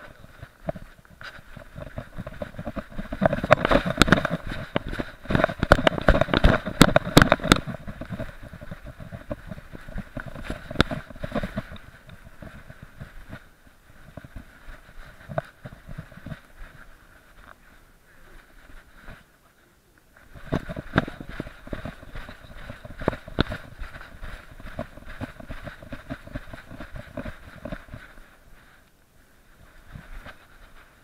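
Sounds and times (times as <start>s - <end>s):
camera knocking and rubbing: 0.0s - 13.4s, 14.0s - 16.8s, 20.2s - 28.3s.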